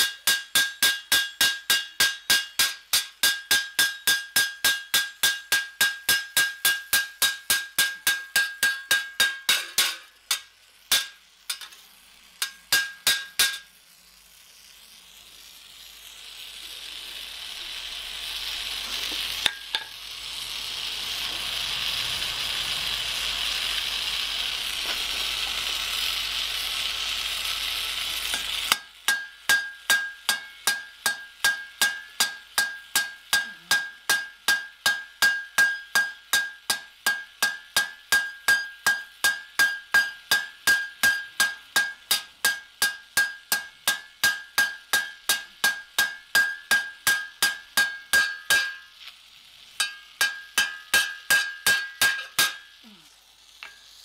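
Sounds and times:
hammer ringing on rivet: 0:00.0 - 0:11.7, 0:12.4 - 0:13.6, 0:28.3 - 0:48.9, 0:49.8 - 0:52.7
hand torch hissing: 0:14.7 - 0:28.9.

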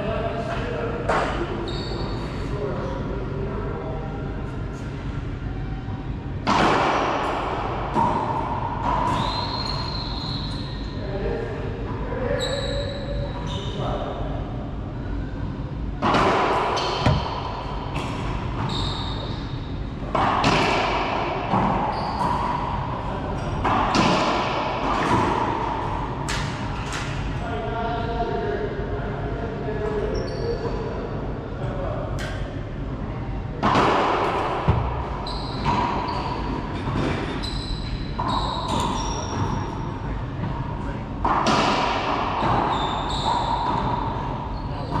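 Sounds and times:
sneaker squeaks on wooden floor: 0:01.6 - 0:02.2, 0:09.0 - 0:10.9, 0:16.8 - 0:17.7, 0:18.6 - 0:19.8, 0:21.9 - 0:22.4, 0:34.7 - 0:36.5, 0:37.2 - 0:39.7, 0:42.4 - 0:45.0
racquetball hits: 0:06.4 - 0:09.9, 0:16.0 - 0:27.2, 0:33.6 - 0:37.4, 0:41.2 - 0:45.0.

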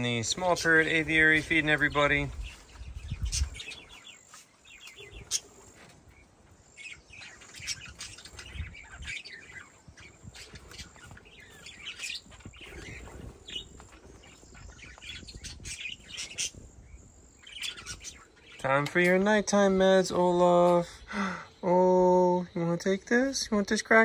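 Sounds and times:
small parrots chirping: 0:00.3 - 0:19.2.

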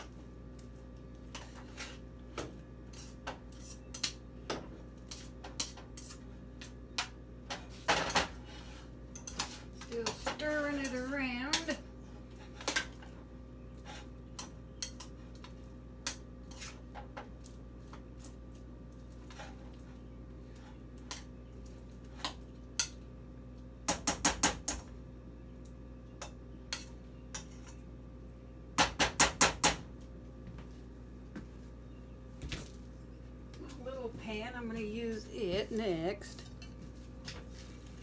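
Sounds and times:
spoon knocking and scraping in pot: 0:09.1 - 0:11.8.

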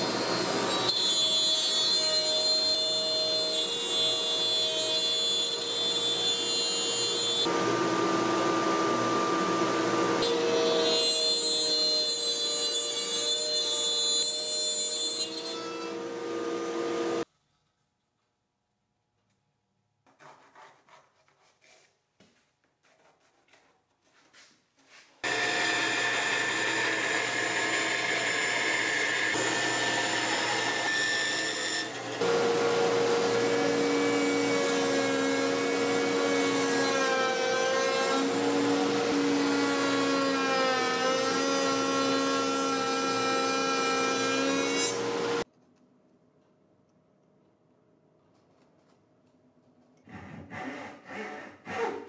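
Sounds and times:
pencil scratching on board: 0:20.1 - 0:22.0
router whining: 0:25.2 - 0:44.2.

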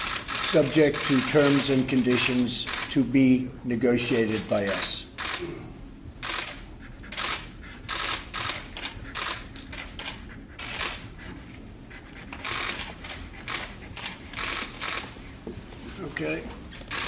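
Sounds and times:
camera shutters clicking: 0:00.0 - 0:01.8, 0:04.3 - 0:05.4, 0:06.2 - 0:11.0, 0:12.4 - 0:15.1, 0:16.8 - 0:17.0.

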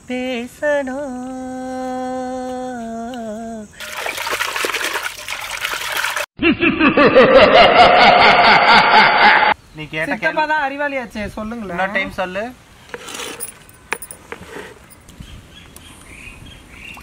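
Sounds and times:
water running and splashing: 0:03.8 - 0:06.3.

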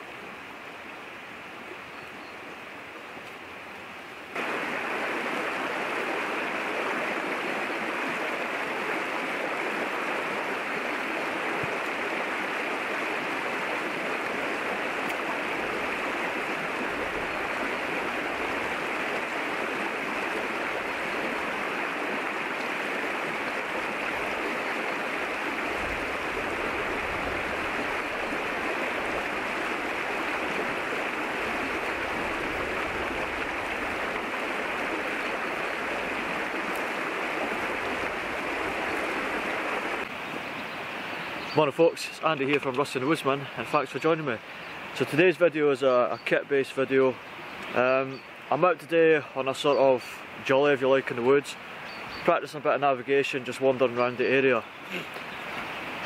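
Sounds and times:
stream rushing over stones: 0:00.0 - 0:56.0.

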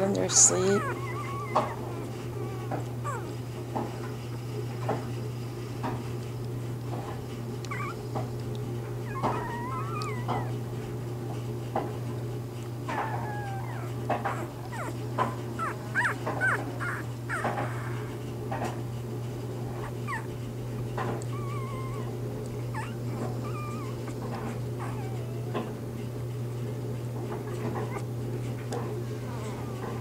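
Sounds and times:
steady low hum: 0:00.0 - 0:30.0
puppies squeaking and whimpering: 0:00.1 - 0:04.2, 0:07.7 - 0:08.1, 0:09.0 - 0:10.6, 0:12.9 - 0:18.2, 0:19.7 - 0:20.4, 0:21.1 - 0:25.9, 0:27.3 - 0:28.1.

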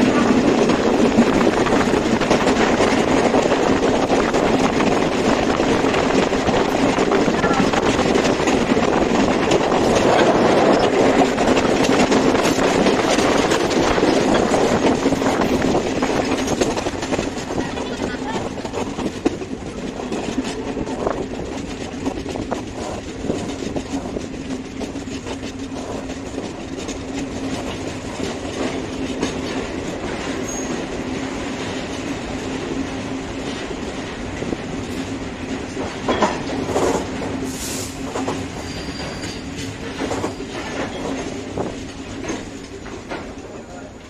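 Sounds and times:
train wheels clicking on track: 0:00.0 - 0:44.0
brief high squeal: 0:38.6 - 0:39.5.

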